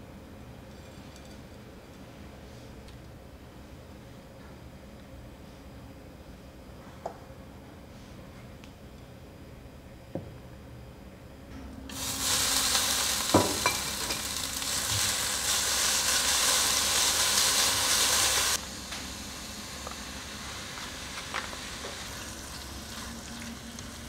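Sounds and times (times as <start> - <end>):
noodles sizzling in a frying pan: 11.9 - 24.0.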